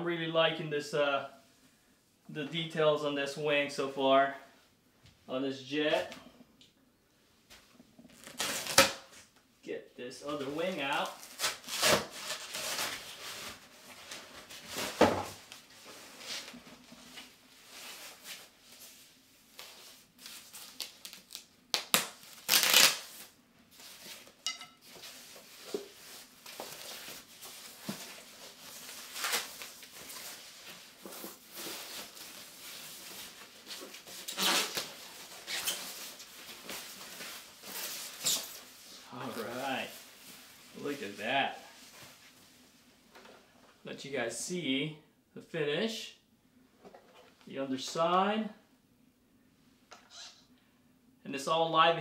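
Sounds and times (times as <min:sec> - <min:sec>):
packaging rustling and tearing: 0:11.0 - 0:15.0, 0:19.6 - 0:39.6.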